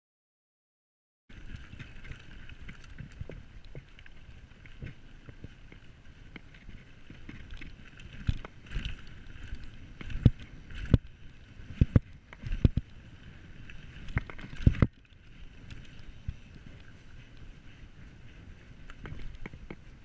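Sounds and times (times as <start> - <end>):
bike tyres and wind rushing: 1.3 - 20.0
bike knocking and rattling: 11.7 - 12.9.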